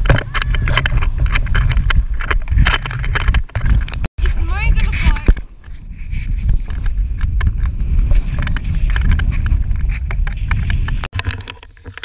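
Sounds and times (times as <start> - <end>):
wind rumbling on microphone: 0.0 - 12.0.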